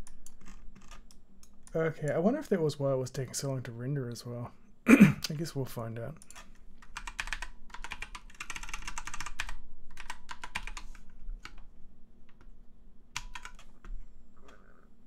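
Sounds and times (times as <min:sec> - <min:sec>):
computer keyboard typing: 0:00.0 - 0:01.8, 0:06.2 - 0:11.6, 0:13.2 - 0:13.8.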